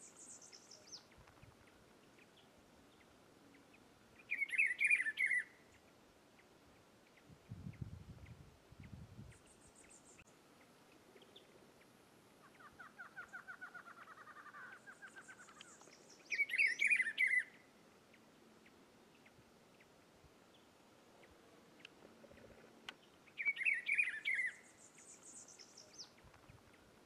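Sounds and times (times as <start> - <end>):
bird whistled song phrase: 4.3 - 5.6, 14.8 - 17.6, 23.4 - 26.1.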